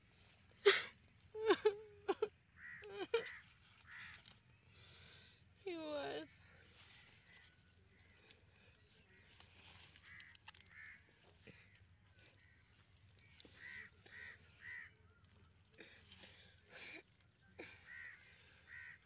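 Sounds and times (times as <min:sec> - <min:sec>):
crow cawing: 0:02.6 - 0:04.4, 0:06.9 - 0:15.8, 0:17.6 - 0:19.0.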